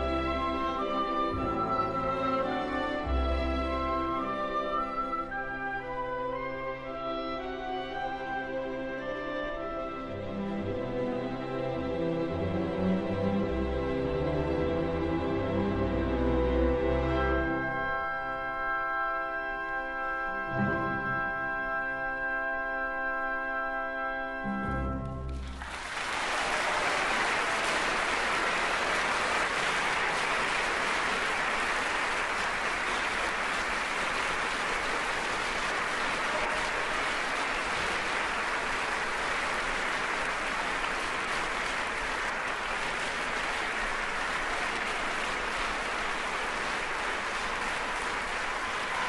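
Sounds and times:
audience applauding: 0:25.3 - 0:49.0.

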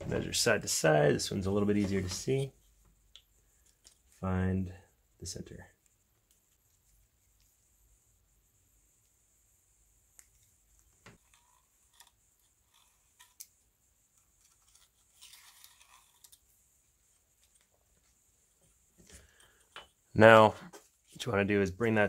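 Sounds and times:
pencil scratching on tape: 0:11.2 - 0:13.4.

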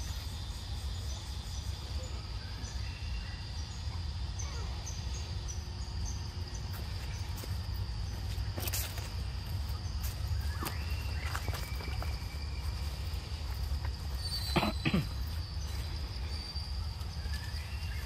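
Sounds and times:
constant low rumble: 0:00.0 - 0:18.0
insects droning: 0:00.0 - 0:18.0.

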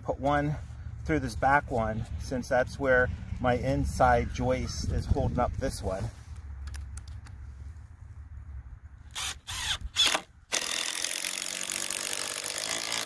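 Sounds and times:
impact driver driving screw into wood: 0:09.1 - 0:13.0.

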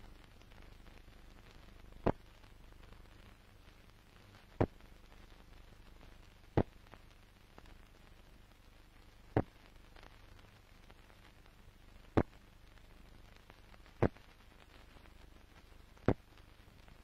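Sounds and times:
film soundtrack hiss and hum: 0:00.0 - 0:17.0
sharp pops: 0:01.5 - 0:03.3, 0:04.2 - 0:05.3, 0:06.4 - 0:07.7, 0:09.3 - 0:10.2, 0:12.1 - 0:16.6.

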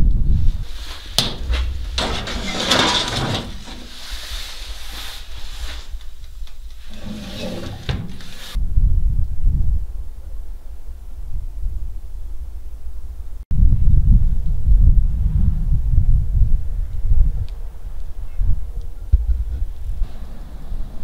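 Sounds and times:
wind rumble on microphone: 0:00.0 - 0:06.7, 0:07.6 - 0:21.0
handling noises: 0:00.5 - 0:08.6
metal pot scraping on rack: 0:01.0 - 0:04.4, 0:06.8 - 0:08.6.

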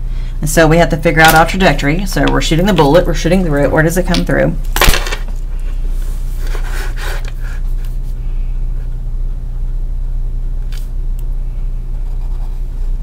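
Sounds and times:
low hum: 0:00.0 - 0:13.0
pencil scratching on paper: 0:11.9 - 0:12.8.

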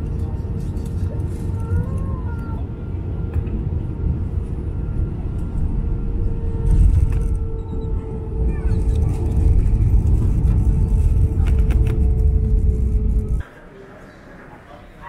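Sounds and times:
vehicle cabin rumble: 0:00.0 - 0:13.4
gliding squeaks: 0:06.6 - 0:11.3.

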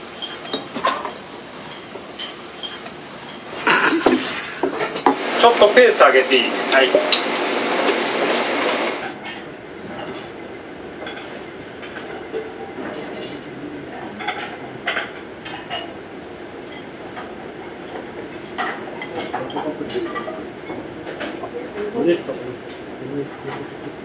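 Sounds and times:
cutlery clinking on plates: 0:00.1 - 0:05.2, 0:11.0 - 0:13.5, 0:14.1 - 0:16.0, 0:16.6 - 0:24.0.

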